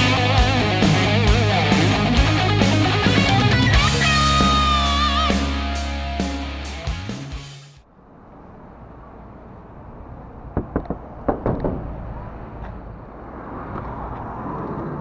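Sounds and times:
sliding van door knocks: 10.6s - 12.0s.

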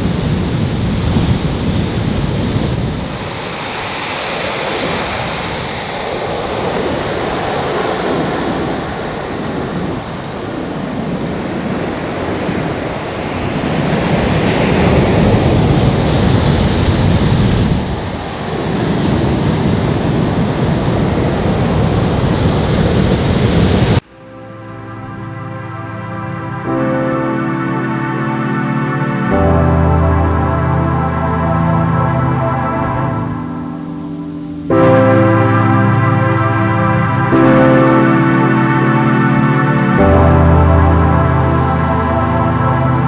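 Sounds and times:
wind rumbling on microphone: 0.0s - 24.0s
ocean surf breaking on beach: 0.0s - 43.0s.

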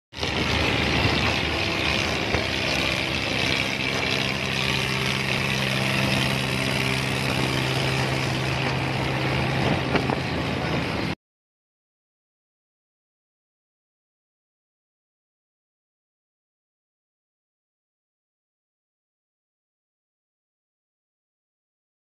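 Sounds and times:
tractor diesel engine running: 0.2s - 11.2s.

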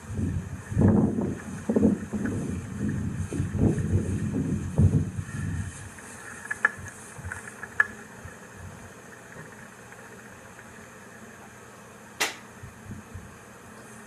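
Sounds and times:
rustle: 0.0s - 11.4s
woodland background hiss: 0.0s - 14.0s
sharp clicks: 12.2s - 12.4s.

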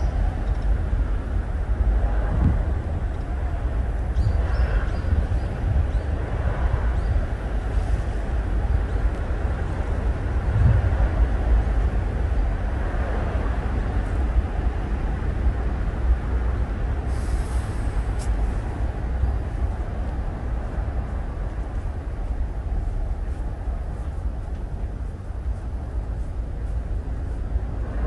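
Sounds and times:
low outdoor rumble: 0.0s - 28.0s
short hiss: 17.1s - 18.4s.

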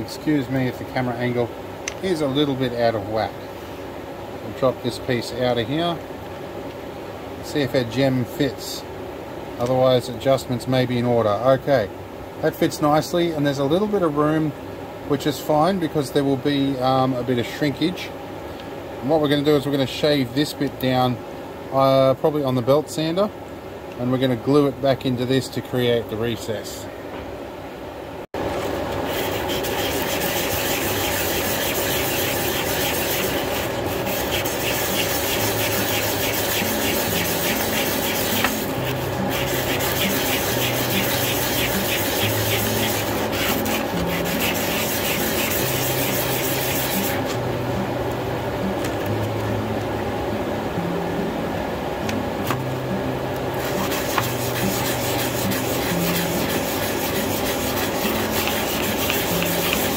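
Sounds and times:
acrylic rubbing on sandpaper: 28.6s - 47.3s, 53.6s - 59.9s.

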